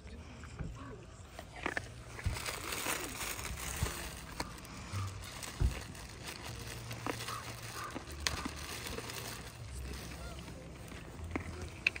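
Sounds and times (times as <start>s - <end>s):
plastic bag crinkling: 1.6s - 12.0s.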